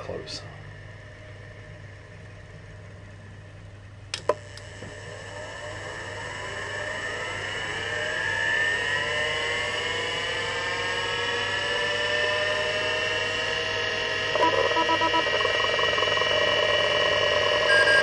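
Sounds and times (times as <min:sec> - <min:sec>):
low steady hum: 0:00.0 - 0:07.9, 0:12.2 - 0:18.0
hard drive motor whine: 0:00.0 - 0:18.0.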